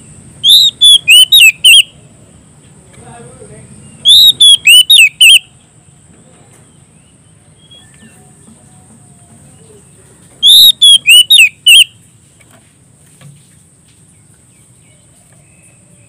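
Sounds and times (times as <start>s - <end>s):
bird singing whistled phrases: 0.4s - 1.9s, 3.9s - 5.5s, 10.4s - 11.9s.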